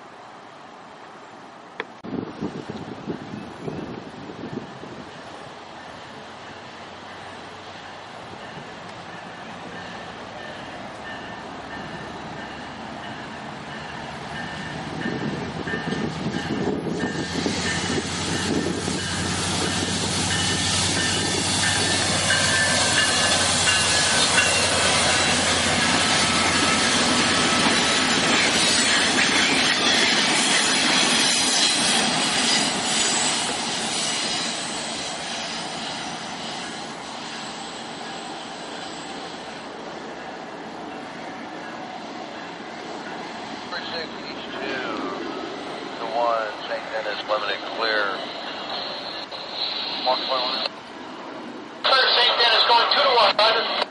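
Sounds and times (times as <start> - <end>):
train wheels on rails: 1.7 - 51.8
locomotive engine running: 8.2 - 31.2.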